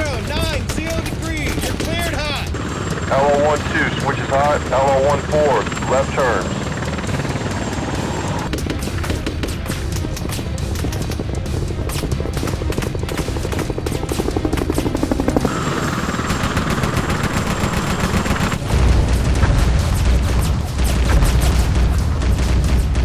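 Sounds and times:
background music: 0.0 - 23.0
rapid automatic gunfire: 0.0 - 23.0
deep rumble of explosions: 18.2 - 23.0.

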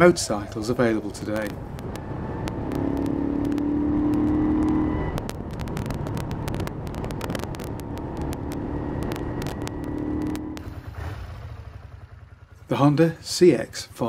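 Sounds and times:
motorcycle engine running: 0.0 - 14.0
wind on microphone: 1.2 - 10.2.

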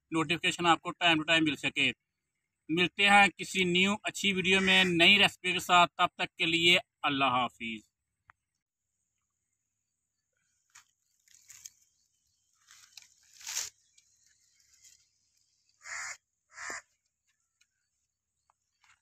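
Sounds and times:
crow cawing: 15.8 - 16.9.

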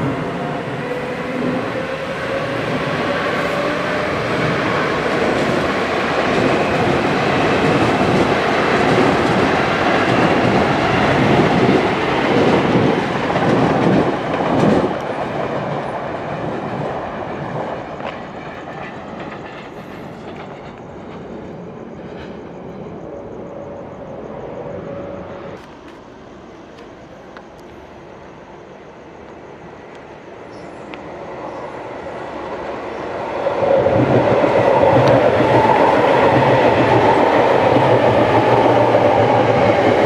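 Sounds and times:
train wheels clattering over rails: 0.0 - 22.6.

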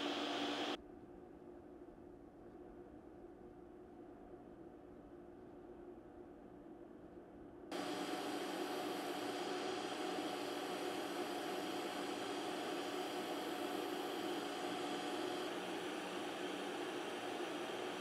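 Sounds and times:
welding arc hiss and buzz: 0.0 - 0.8, 7.7 - 18.0.

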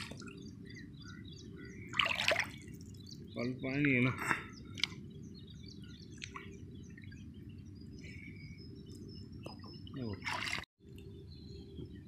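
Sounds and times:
birds chirping: 0.0 - 12.0
water splashing and dripping: 1.9 - 3.0, 9.4 - 10.7.

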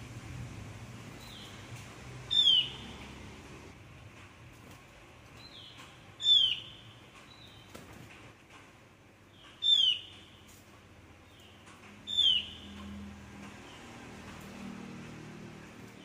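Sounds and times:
softer bird calls: 1.2 - 3.2, 5.4 - 7.8, 9.4 - 10.6, 11.3 - 12.9.

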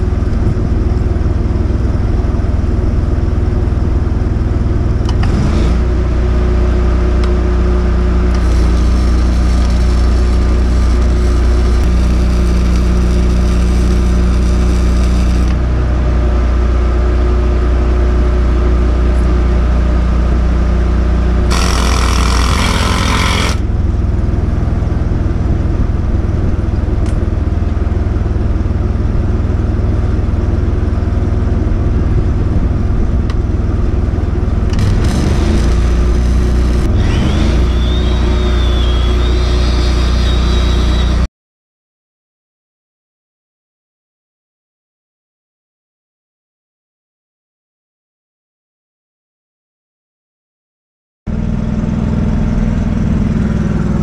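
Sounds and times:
welder engine running: 0.0 - 41.3.

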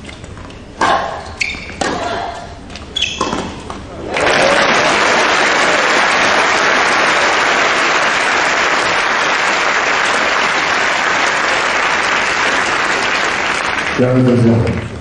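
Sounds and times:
spectators applauding: 4.0 - 15.0.

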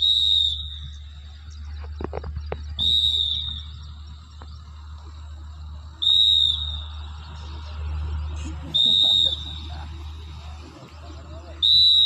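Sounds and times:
shrill whistle blasts: 0.0 - 1.1, 2.7 - 4.0, 5.9 - 7.3, 8.7 - 9.8, 11.5 - 12.0.

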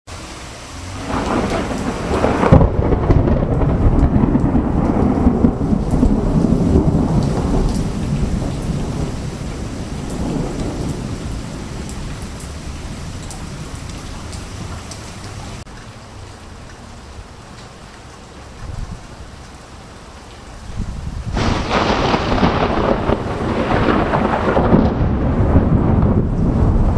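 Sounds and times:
rain falling: 0.1 - 26.9
thunder rumbling and cracking: 0.9 - 15.6, 20.7 - 26.9.

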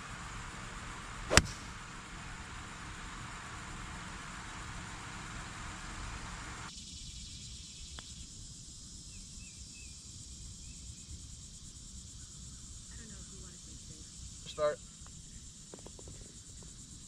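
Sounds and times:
faint insects: 0.0 - 17.0
outdoor rumble and hiss: 0.0 - 17.0
putter striking golf ball: 1.3 - 1.7.

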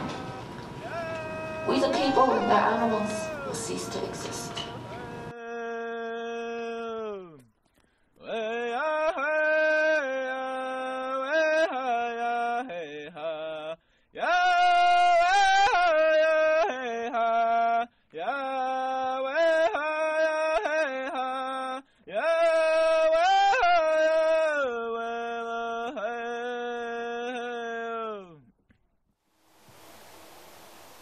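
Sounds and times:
person singing chant-like melody: 0.0 - 7.4, 8.2 - 17.6.

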